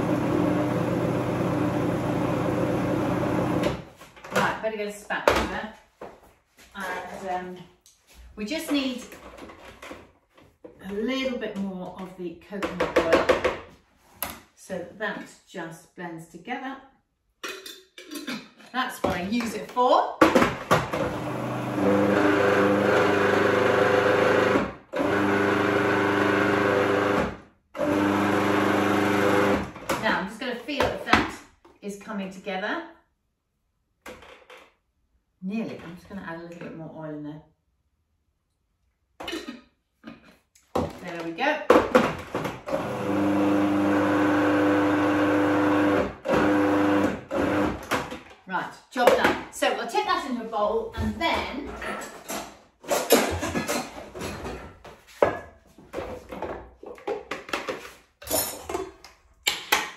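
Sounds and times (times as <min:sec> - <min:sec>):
food processor motor running: 0:00.0 - 0:03.7, 0:21.0 - 0:29.8, 0:42.7 - 0:47.9.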